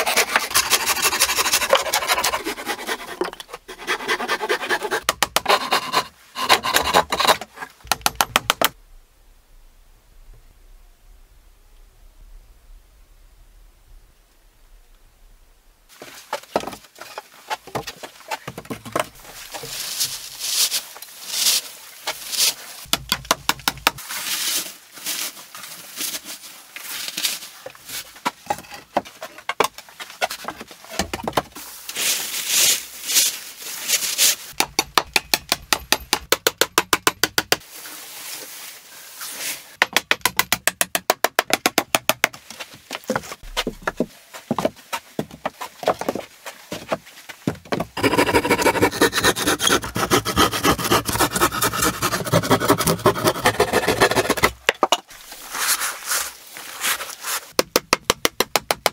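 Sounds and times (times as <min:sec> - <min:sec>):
hand tool rasping strokes: 0:00.0 - 0:07.5, 0:48.0 - 0:54.6.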